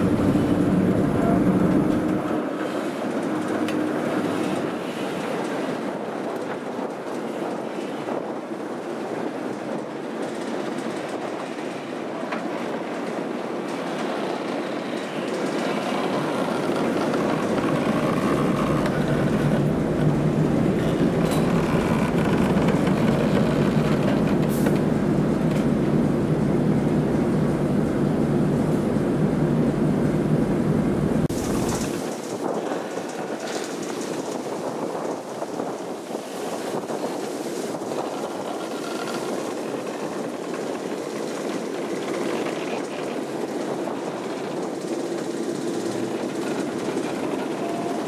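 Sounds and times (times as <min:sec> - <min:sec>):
steam locomotive rolling on rails: 0:00.0 - 0:48.0
wheels creaking and clicking: 0:09.6 - 0:25.7, 0:31.2 - 0:48.0.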